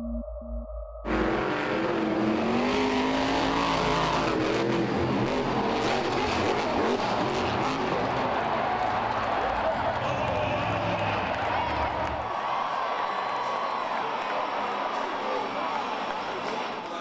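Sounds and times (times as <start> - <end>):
truck engine at high revs: 1.1 - 12.3.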